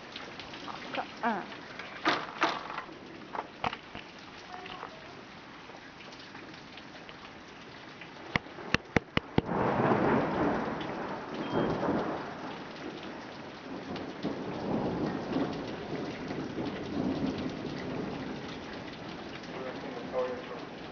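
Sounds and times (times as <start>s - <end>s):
heavy rain falling: 0.0s - 20.9s
sharp thunder cracks: 8.4s - 12.9s, 13.7s - 18.3s
rolling thunder: 8.4s - 20.9s.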